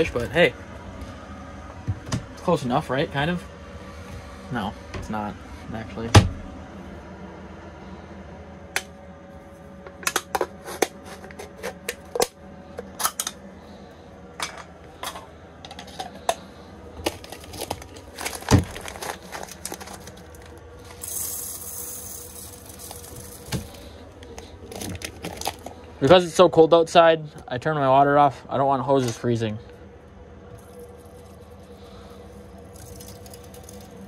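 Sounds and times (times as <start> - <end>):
dry grains pouring: 17.3 - 23.9.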